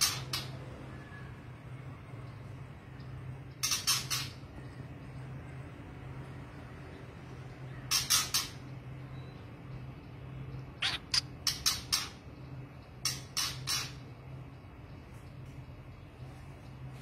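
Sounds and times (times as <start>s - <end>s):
bird giving harsh calls: 10.8s - 11.8s.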